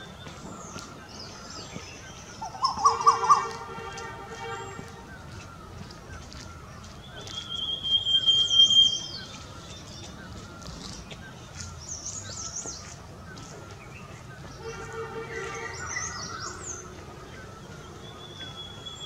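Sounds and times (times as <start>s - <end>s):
birds chirping: 0.0s - 19.0s
sweeping high bird calls: 0.0s - 19.0s
high bird whistle: 7.2s - 9.3s.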